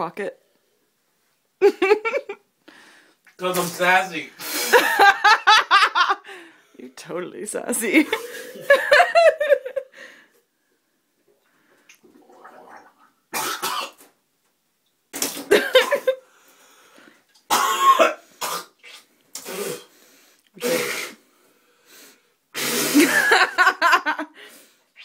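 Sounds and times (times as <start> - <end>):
man coughing hard: 13.4 - 14.0, 17.5 - 18.7.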